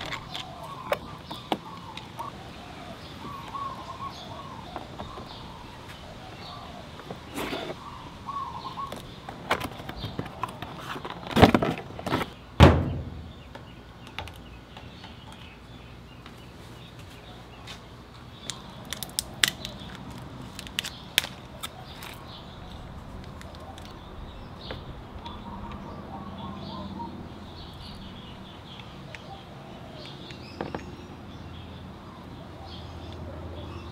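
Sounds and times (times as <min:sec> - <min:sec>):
heavy knocks of battery: 0:12.6 - 0:13.5.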